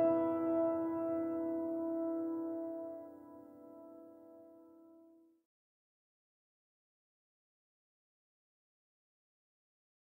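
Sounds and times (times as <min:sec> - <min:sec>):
held music chord: 0:00.0 - 0:04.5.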